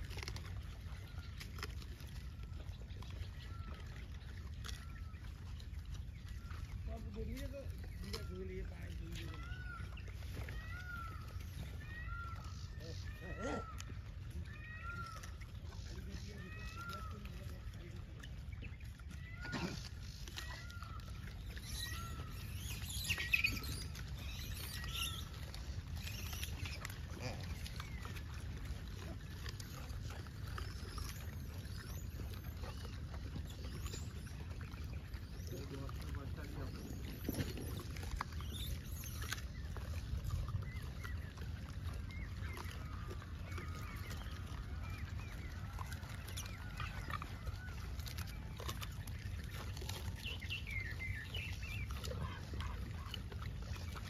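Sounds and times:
animal chirps: 19.1s - 27.4s.

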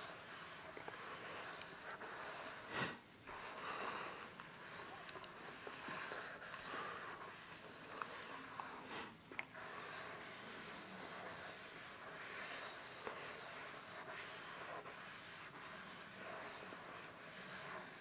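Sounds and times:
sponge scrubbing soapy suds: 9.6s - 18.0s.

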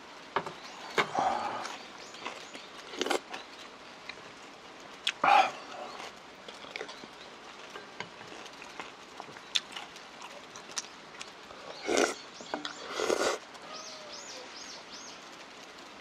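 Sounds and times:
slurping and chewing food: 0.9s - 3.5s, 7.6s - 13.4s.

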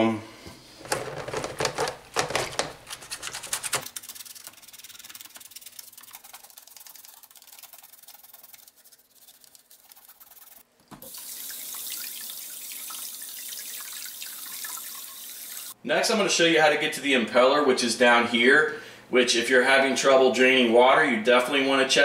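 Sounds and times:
toothbrush scrubbing filter: 0.8s - 10.6s
tap water running: 11.0s - 15.8s.

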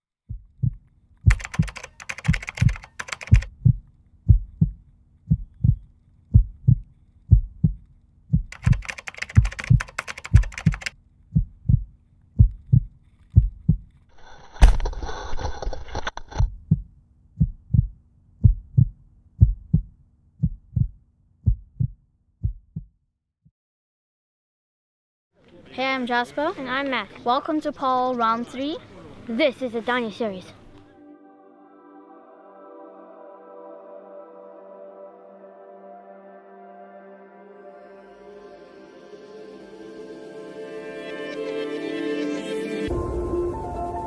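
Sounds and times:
heartbeat: 0.3s - 13.9s, 16.4s - 23.0s.

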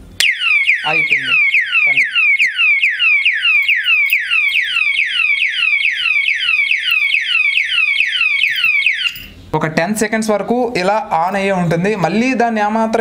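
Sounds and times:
alarm siren sweeping down: 0.2s - 9.3s.

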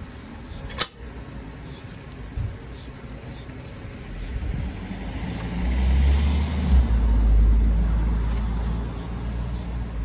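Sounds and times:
wind buffeting microphone: 4.3s - 4.9s.

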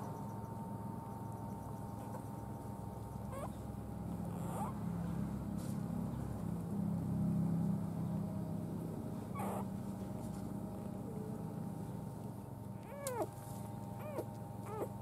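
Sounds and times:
puppy squeaking: 3.3s - 3.5s, 4.3s - 4.8s, 9.3s - 9.7s, 12.8s - 13.3s, 14.0s - 15.0s.

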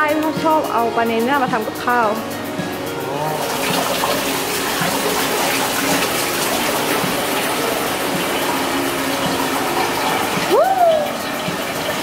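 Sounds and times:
running splashing water: 2.9s - 12.0s.

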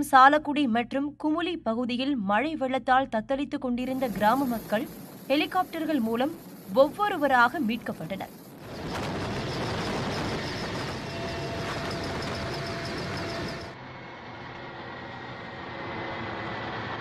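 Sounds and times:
helicopter engine and rotor noise: 3.9s - 17.0s.

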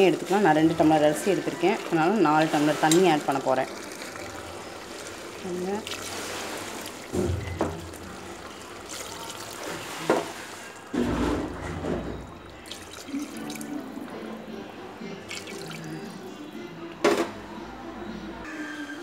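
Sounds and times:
water splashing into thick gravy: 2.3s - 11.2s, 12.6s - 13.8s.

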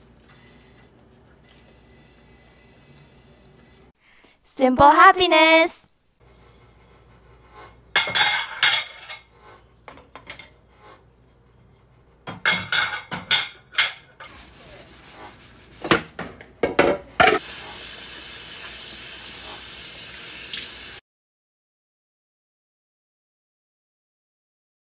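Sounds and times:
dishes clinking and knocking: 7.9s - 9.3s, 9.9s - 10.6s, 12.2s - 14.3s, 15.9s - 17.4s.

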